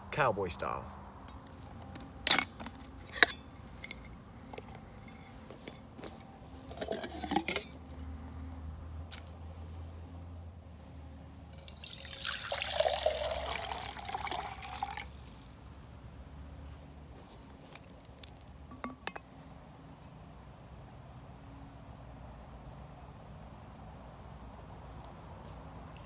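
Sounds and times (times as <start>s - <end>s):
water pouring into metal pot: 11.6s - 15.3s.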